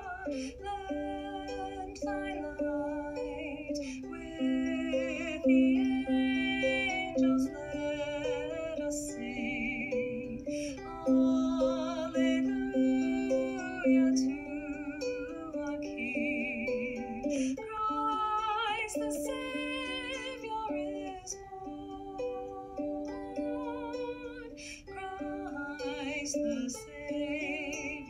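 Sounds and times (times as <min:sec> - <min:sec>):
ukulele: 0:00.0 - 0:28.0
woman singing with vibrato: 0:00.0 - 0:28.0.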